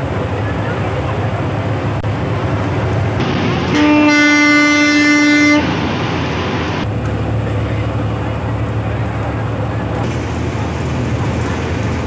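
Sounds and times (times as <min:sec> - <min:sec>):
bus engine hum: 0:00.0 - 0:12.0
road noise: 0:00.0 - 0:12.0
vehicle horn blaring: 0:03.7 - 0:05.8.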